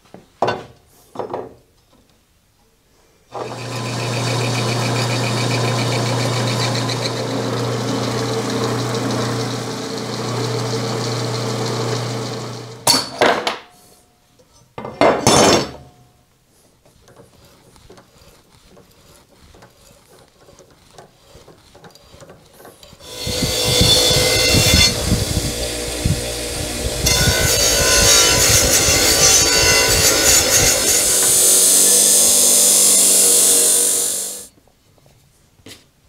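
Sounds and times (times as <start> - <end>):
drill press humming: 3.4 - 12.8, 17.1 - 34.5.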